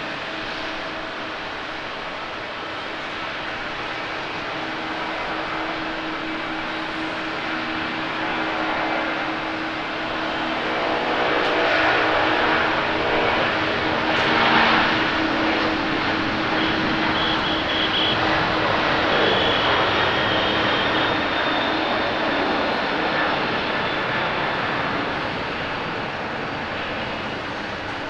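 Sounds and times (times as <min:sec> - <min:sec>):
jet engines roaring at takeoff: 0:00.0 - 0:28.0.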